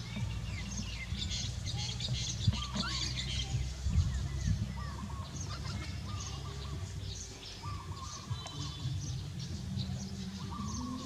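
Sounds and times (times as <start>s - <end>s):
bird wavering call: 10.1s - 11.0s.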